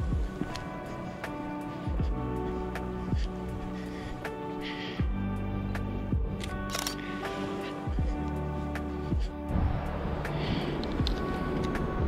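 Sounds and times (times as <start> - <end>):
sustained music chords: 0.0 - 12.0
light ticking percussion: 10.3 - 12.0.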